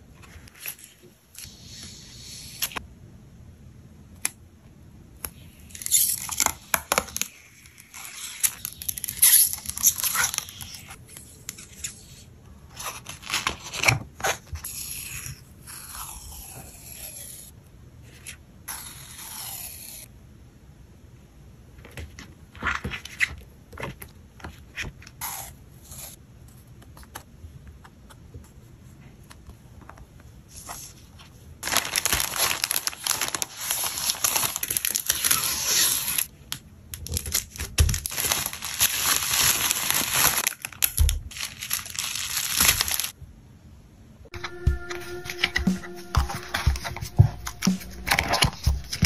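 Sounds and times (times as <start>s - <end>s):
bubble wrap crinkling: 31.6s - 36.3s, 37.0s - 43.2s.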